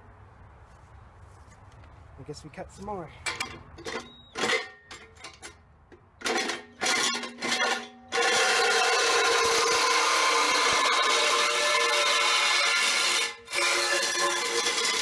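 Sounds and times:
reciprocating saw cutting steel: 6.6 - 15.0.

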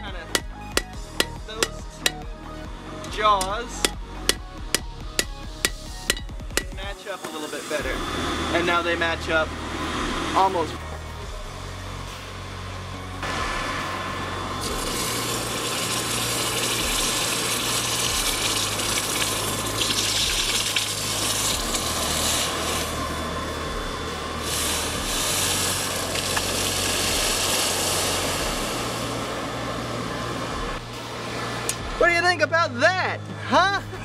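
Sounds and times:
hot metal hissing in water: 4.3 - 10.8, 13.2 - 30.0
low steady hum: 7.8 - 34.0.

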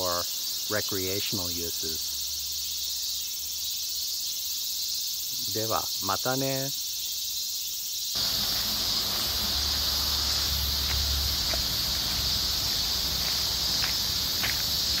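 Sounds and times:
insects chirping: 0.0 - 15.0
faint footsteps on gravel: 8.2 - 15.0.

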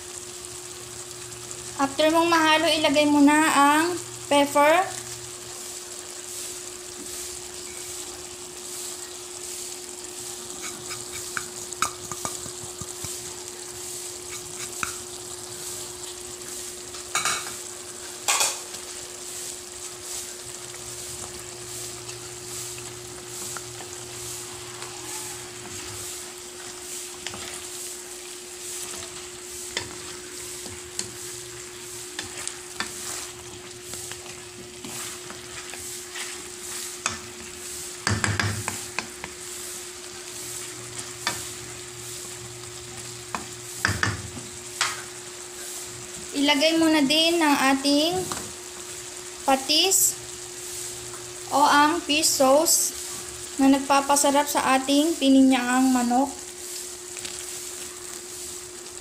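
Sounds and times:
chicken sizzling in a wok: 0.0 - 59.0
spatula scraping pan: 10.4 - 15.2, 21.6 - 42.2
wooden spatula knocking on pan: 11.2 - 13.2, 38.0 - 39.3, 43.3 - 45.0.

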